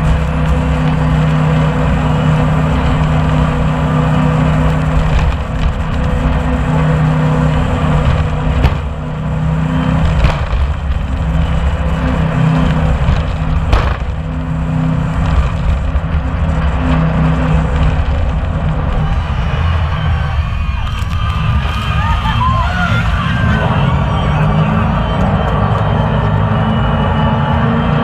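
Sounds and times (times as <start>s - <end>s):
boat engine drone: 0.0s - 28.0s
sharp knocks: 8.1s - 9.2s.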